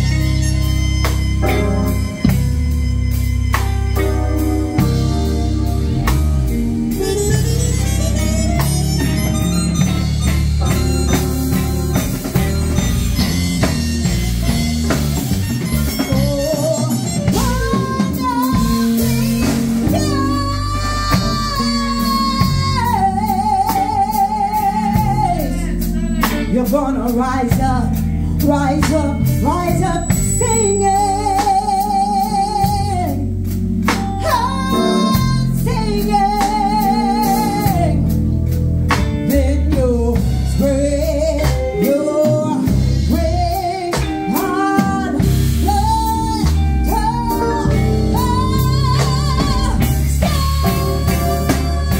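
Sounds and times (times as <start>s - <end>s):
drum kit: 0.0s - 51.9s
electric guitar: 0.0s - 51.9s
woman singing into a microphone: 6.9s - 9.0s, 15.8s - 38.3s, 39.0s - 51.9s.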